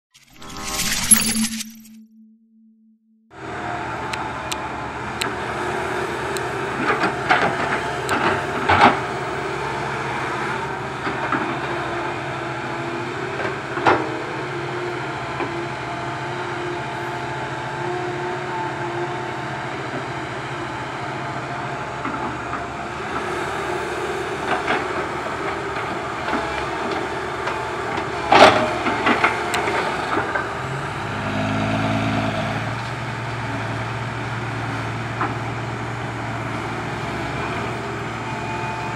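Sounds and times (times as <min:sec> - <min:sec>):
excavator diesel engine running: 0:03.4 - 0:38.9.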